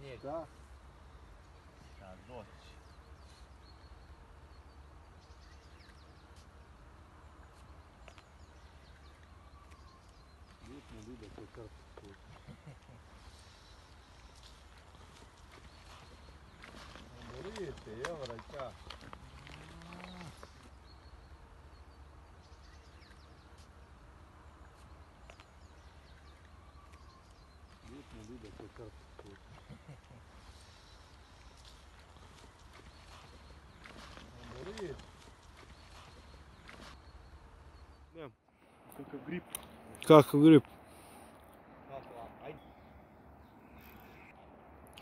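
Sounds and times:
faint bird chirps: 0:07.3 - 0:23.8, 0:24.6 - 0:39.8.

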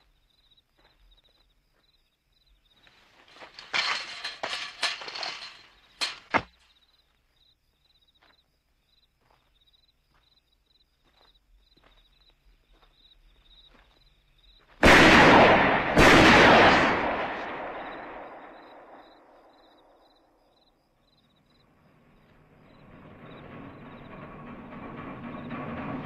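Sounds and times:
crickets chirping: 0:00.0 - 0:14.8, 0:17.4 - 0:25.7
echoing gunshots: 0:14.8 - 0:19.7.

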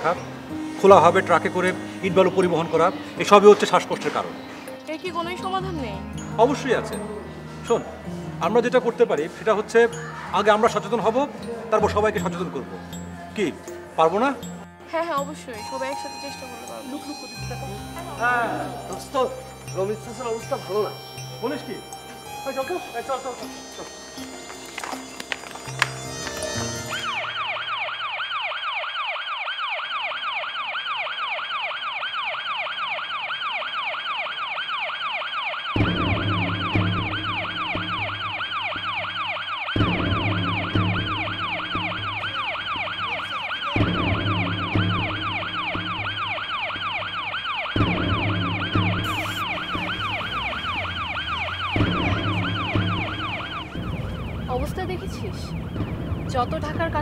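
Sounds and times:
ambulance siren warbling: 0:00.0 - 0:14.4, 0:15.0 - 0:57.0
pulsing bass music: 0:10.1 - 0:27.5, 0:35.8 - 0:57.0.

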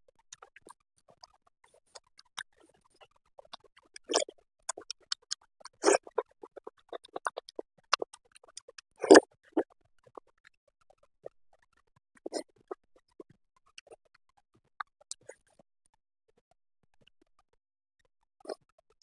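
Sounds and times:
wet mouth clicks and lip smacks: 0:03.4 - 0:09.2
person chewing: 0:03.5 - 0:09.2.

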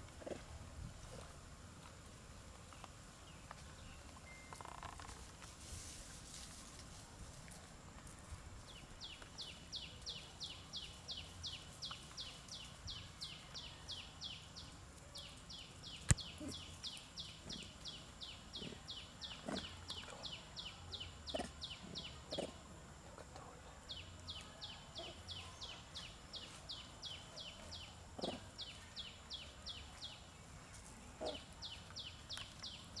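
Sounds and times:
bird chirping: 0:08.7 - 0:22.6.

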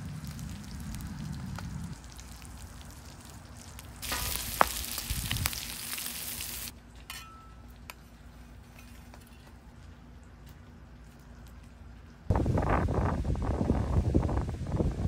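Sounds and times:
meat and cheese sizzling on griddle: 0:00.0 - 0:06.7.

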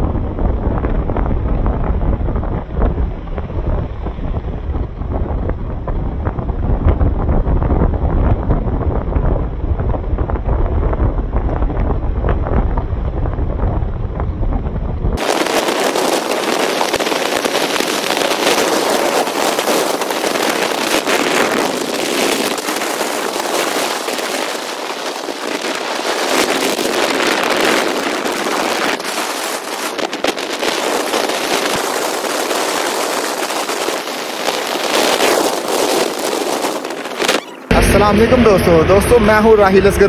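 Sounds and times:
wind and road noise rushing: 0:00.0 - 0:40.0
constant crackle: 0:15.2 - 0:37.7.

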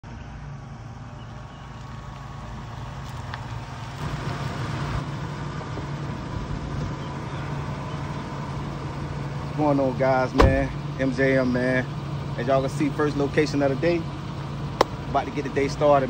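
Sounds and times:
pickup truck engine idling: 0:05.0 - 0:16.0.

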